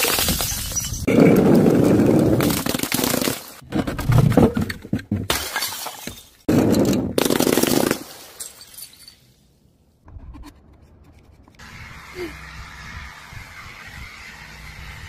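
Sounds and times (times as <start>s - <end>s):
glass bottles smashing on stone: 0.0s - 1.1s, 5.2s - 9.4s.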